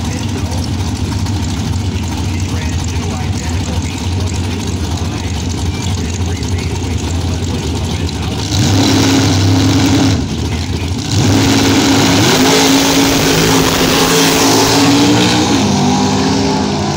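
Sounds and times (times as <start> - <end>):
cars launching at full throttle: 0.0 - 16.9
drag race engines revving: 0.0 - 16.9.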